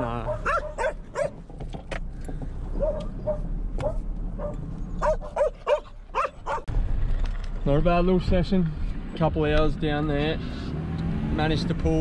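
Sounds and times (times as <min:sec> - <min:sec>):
dog yapping: 0:00.3 - 0:01.4, 0:02.8 - 0:06.7.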